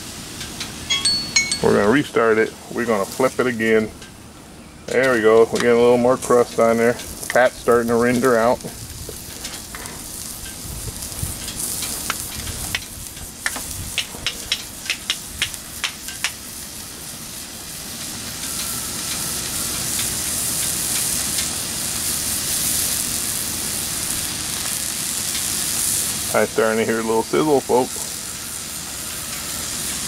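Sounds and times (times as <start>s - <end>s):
steak sizzling on a griddle: 0.0s - 3.7s, 5.0s - 30.0s
fat popping and crackling: 8.1s - 16.5s.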